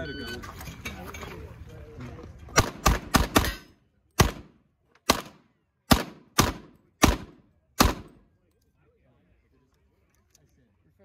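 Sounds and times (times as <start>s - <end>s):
pistol shots: 2.6s - 8.2s.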